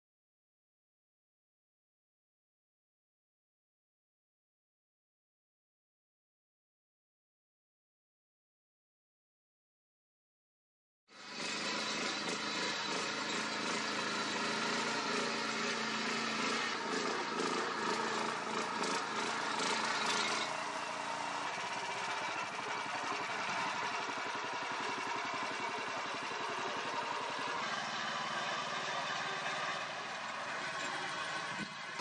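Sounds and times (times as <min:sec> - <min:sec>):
rotary tiller churning soil: 0:11.1 - 0:32.0
small tractor engine running: 0:11.1 - 0:32.0.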